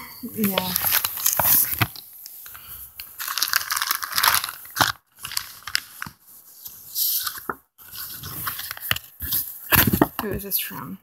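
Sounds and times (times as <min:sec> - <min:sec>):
plastic bag crinkling: 0:00.2 - 0:06.2.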